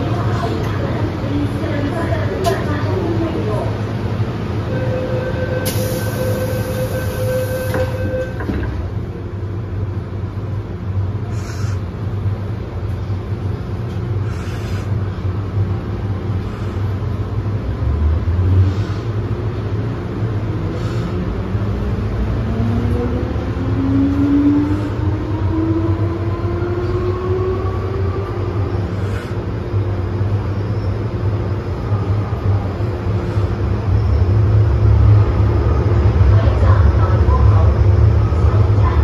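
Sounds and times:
train running rumble: 0:00.0 - 0:39.0.

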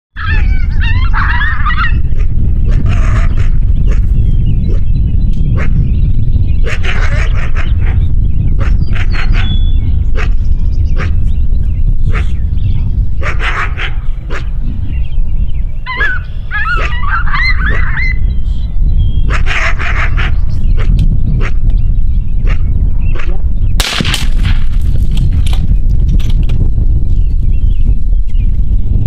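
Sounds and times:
coyote barking and yipping: 0:00.2 - 0:04.1, 0:06.6 - 0:08.0, 0:08.6 - 0:10.4, 0:13.2 - 0:14.5, 0:15.8 - 0:18.2, 0:19.2 - 0:21.6
steady low rumble: 0:00.4 - 0:29.0.

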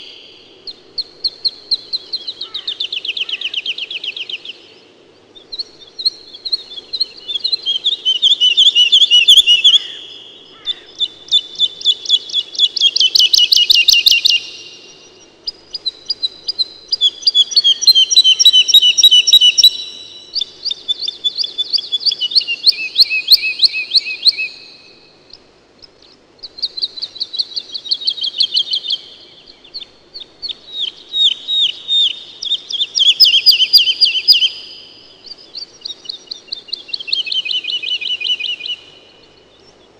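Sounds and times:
songbird trilling: 0:00.0 - 0:04.6, 0:05.3 - 0:39.9.

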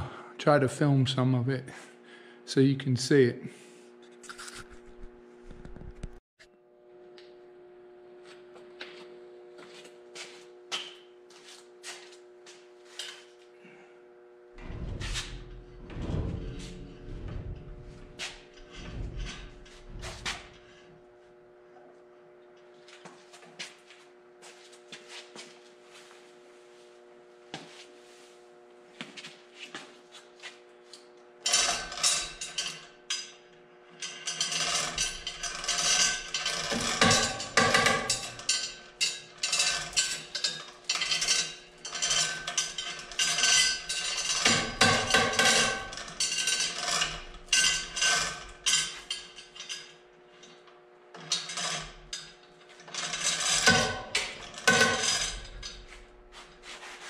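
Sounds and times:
steady low hum: 0:00.0 - 0:50.7
metallic clanking and rattling: 0:14.6 - 0:20.8, 0:34.0 - 0:50.0, 0:51.2 - 0:56.3.

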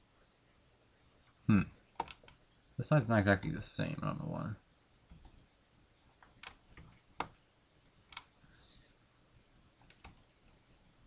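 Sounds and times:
computer mouse and keyboard clicks: 0:01.8 - 0:02.4, 0:06.2 - 0:08.5, 0:09.8 - 0:10.8.

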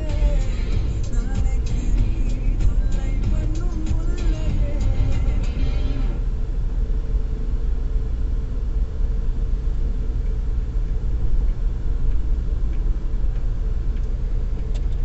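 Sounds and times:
engine and road rumble: 0:00.0 - 0:15.0
faint steady hum: 0:00.0 - 0:15.0.

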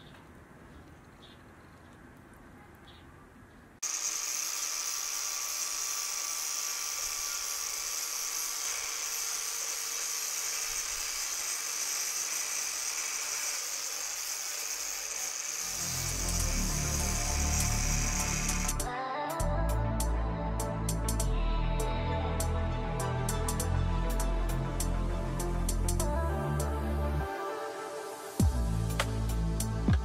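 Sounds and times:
angle grinder cutting plastic: 0:03.8 - 0:18.9.

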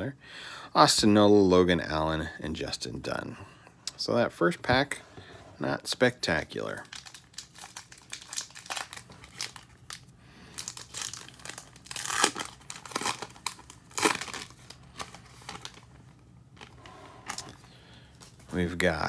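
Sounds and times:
foil wrapper ripping: 0:06.6 - 0:15.9
foil wrapper crinkling: 0:06.6 - 0:16.0.

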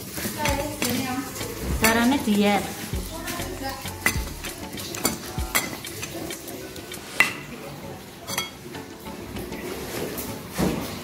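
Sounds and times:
stone-on-stone clacks: 0:00.2 - 0:02.0, 0:03.8 - 0:07.5
stone pestle grinding in mortar: 0:03.7 - 0:07.4.

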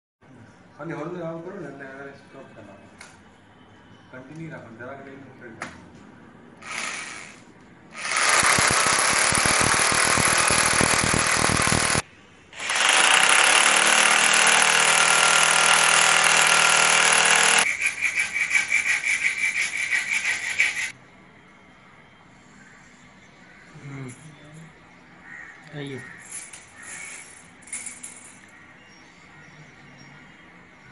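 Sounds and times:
electric drill boring into wood: 0:06.6 - 0:07.4, 0:08.0 - 0:12.0, 0:12.6 - 0:17.7.

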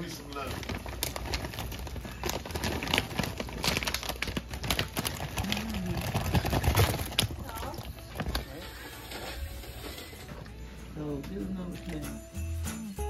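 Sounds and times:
crawfish shells clattering: 0:00.0 - 0:10.0
bag rustling: 0:00.0 - 0:10.4.

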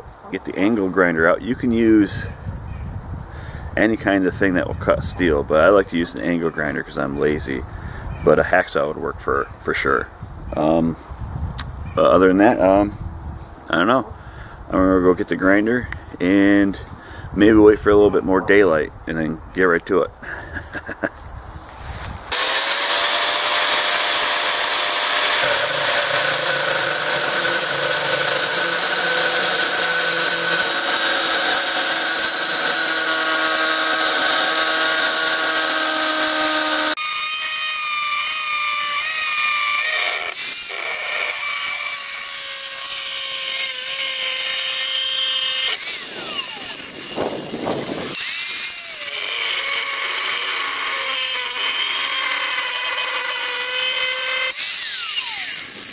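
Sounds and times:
angle grinder cutting steel: 0:22.3 - 0:55.9.

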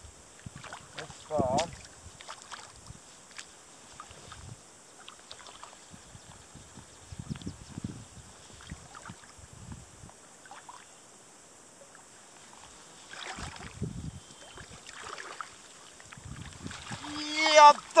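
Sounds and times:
water sloshing and splashing: 0:00.4 - 0:05.9, 0:12.5 - 0:18.0.

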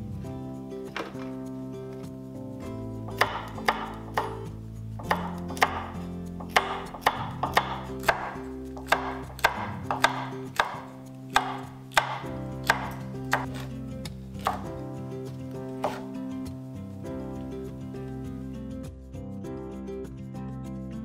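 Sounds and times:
knife chopping on wooden board: 0:03.1 - 0:14.8, 0:15.8 - 0:16.2.

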